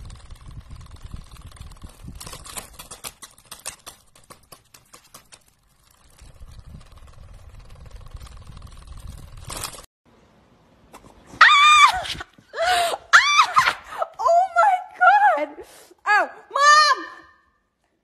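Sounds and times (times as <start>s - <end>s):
electric desk fan humming: 0.0s - 3.2s.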